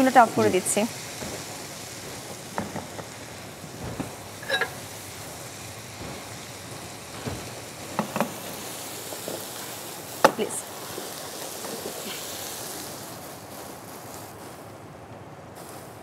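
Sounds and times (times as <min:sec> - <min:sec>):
oil sizzling in a frying pan: 0:00.0 - 0:14.8, 0:15.6 - 0:16.0
spatula scraping a pan: 0:03.8 - 0:09.6.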